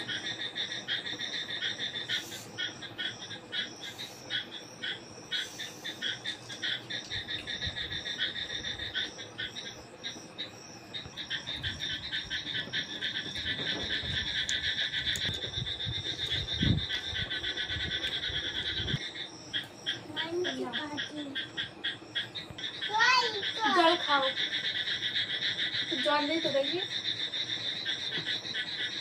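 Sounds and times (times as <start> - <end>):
frogs and insects trilling: 0.0 - 29.0.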